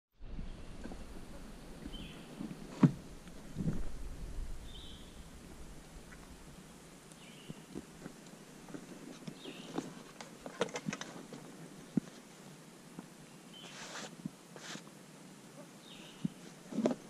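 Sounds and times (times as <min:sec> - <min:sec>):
bird chirping: 0:00.4 - 0:02.6, 0:04.0 - 0:07.8, 0:09.2 - 0:09.9, 0:15.8 - 0:16.4.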